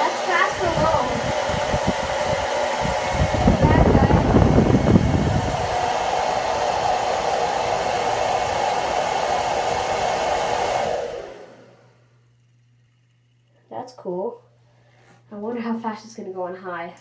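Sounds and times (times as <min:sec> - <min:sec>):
hair dryer running: 0:00.0 - 0:12.2
heavier rumble of air: 0:00.5 - 0:10.0.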